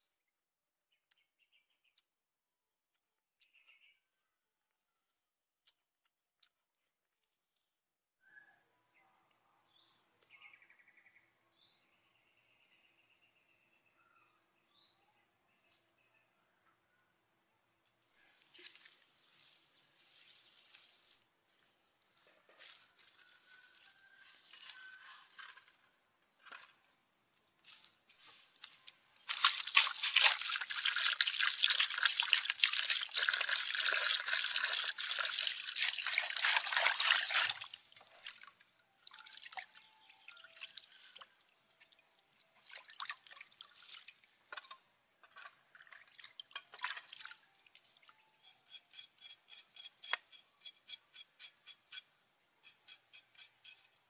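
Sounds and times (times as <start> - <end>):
water splashing and sloshing: 29.2 - 42.0, 42.6 - 44.7, 45.3 - 48.1.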